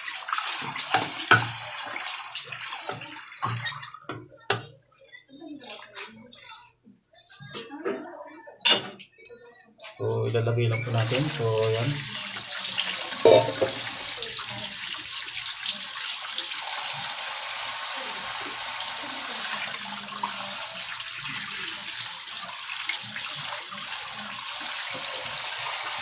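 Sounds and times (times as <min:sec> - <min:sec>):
tap water pouring into a bowl: 0:00.0 - 0:04.6, 0:10.7 - 0:26.0
hands rinsing fish: 0:10.8 - 0:26.0.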